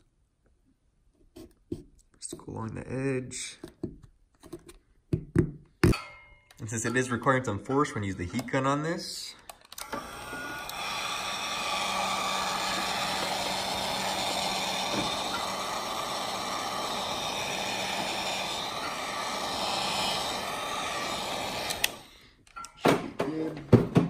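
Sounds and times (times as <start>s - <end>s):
heat gun blowing hiss: 9.8s - 22.2s.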